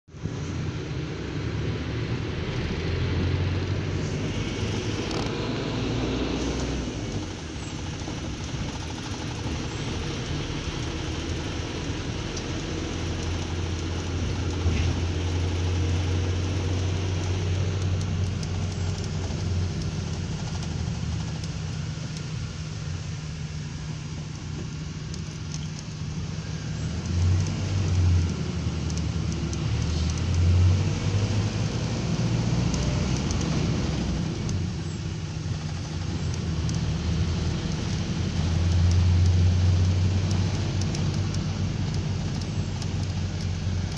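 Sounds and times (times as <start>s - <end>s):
engine and road drone: 0.0s - 43.9s.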